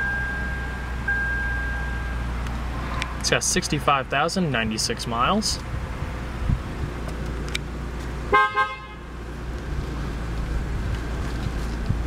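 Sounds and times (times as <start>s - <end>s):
car engine idling: 0.0s - 12.0s
car horn toot: 8.3s - 9.1s.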